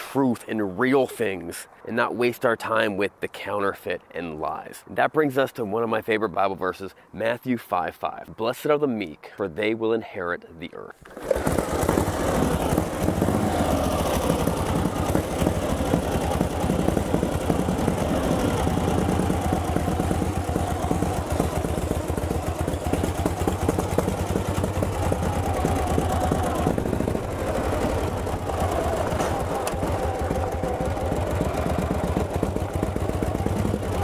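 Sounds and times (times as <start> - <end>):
motorcycle engine idling: 11.4 - 34.0.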